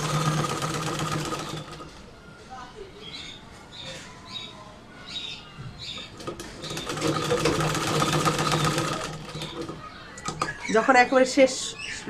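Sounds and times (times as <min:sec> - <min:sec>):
sewing machine stitching: 0:00.0 - 0:01.9, 0:06.2 - 0:10.4.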